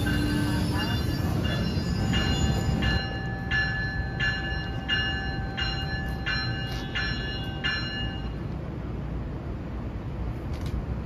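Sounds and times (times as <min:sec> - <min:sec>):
train bell ringing: 0:00.0 - 0:08.6
train rumble: 0:00.0 - 0:11.0.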